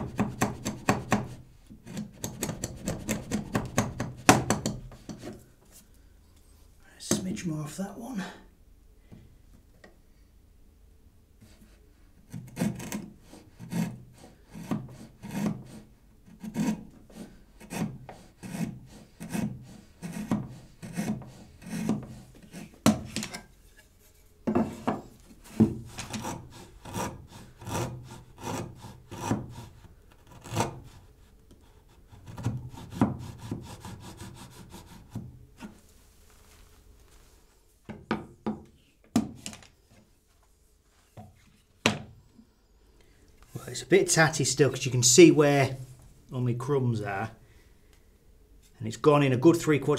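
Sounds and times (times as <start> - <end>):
router plane scraping wood: 12.3 - 23.9, 24.7 - 31.1.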